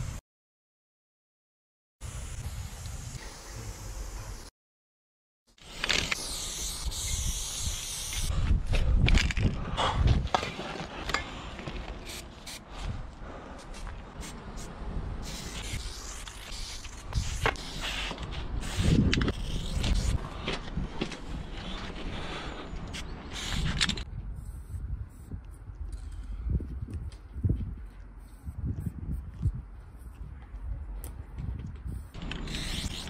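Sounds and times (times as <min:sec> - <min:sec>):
spray paint can hissing: 0:05.6 - 0:08.3, 0:14.2 - 0:20.2, 0:22.9 - 0:25.3, 0:31.9 - 0:33.0.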